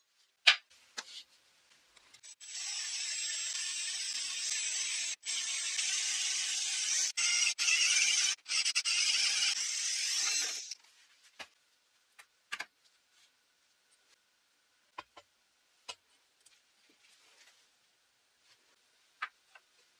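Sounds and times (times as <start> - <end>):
power drill boring into wall: 2.4 - 10.8.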